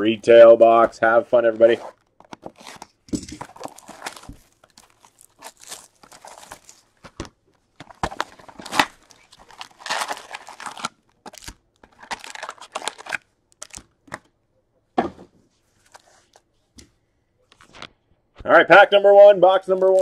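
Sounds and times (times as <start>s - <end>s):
plastic wrap tearing and crinkling: 2.0s - 7.2s, 8.0s - 13.9s.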